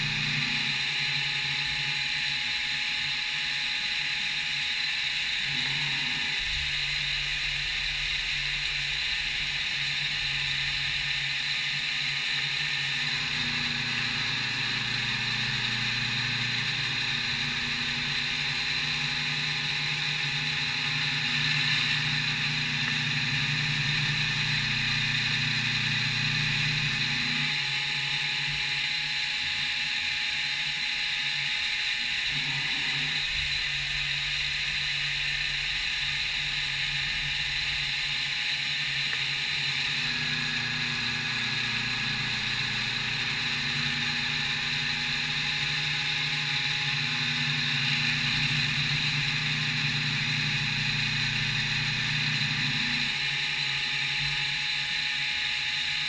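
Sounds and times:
low motor tones: 0:00.0 - 0:29.4, 0:31.2 - 0:55.3
machine spindle whine: 0:00.0 - 0:56.0.

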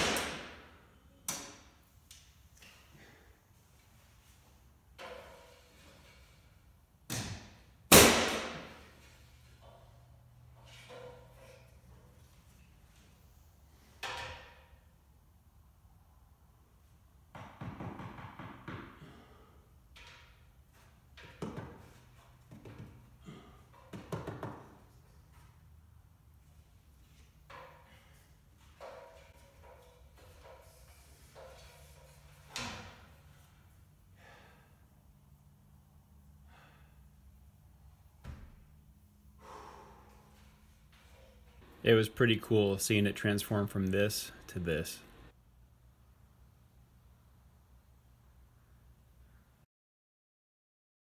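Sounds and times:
nail gun firing into wood: 0:00.0 - 0:00.7, 0:07.1 - 0:08.9
faint puffs of breath: 0:39.4 - 0:40.4.

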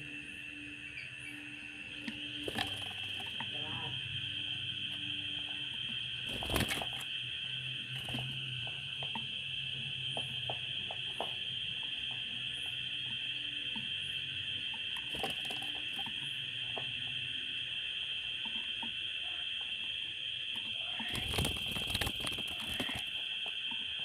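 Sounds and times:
steady high-pitched hum: 0:00.0 - 0:24.0
bird wings flapping: 0:02.4 - 0:03.4, 0:06.3 - 0:07.1, 0:08.0 - 0:08.4, 0:15.1 - 0:16.1, 0:21.0 - 0:23.2.

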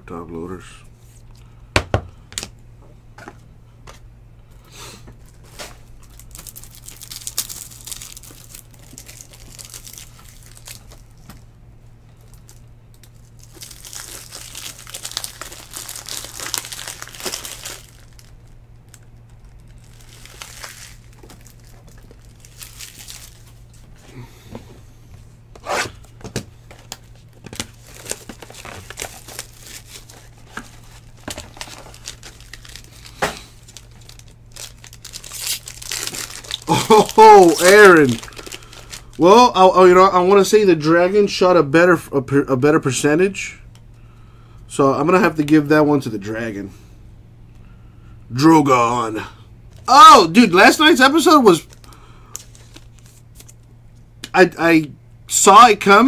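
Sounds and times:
foil wrappers crinkling and tearing: 0:05.2 - 0:11.4, 0:12.1 - 0:23.9, 0:26.2 - 0:39.4, 0:49.7 - 0:53.6.

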